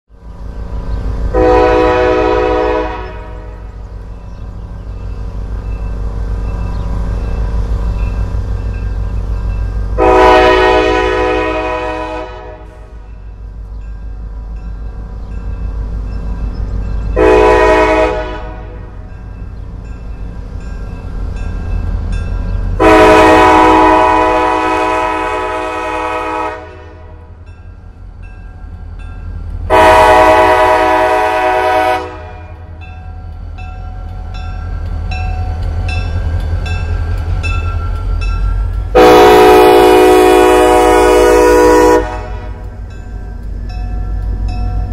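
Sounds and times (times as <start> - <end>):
locomotive engine rumble: 0.1 - 44.9
locomotive air horn blasts: 1.3 - 3.7, 10.0 - 13.0, 17.2 - 18.9, 22.8 - 27.2, 29.7 - 32.8, 38.9 - 42.6.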